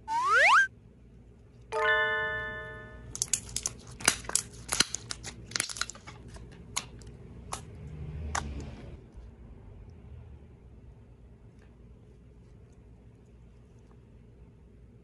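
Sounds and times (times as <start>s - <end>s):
single musical note ringing: 1.8s - 3.1s.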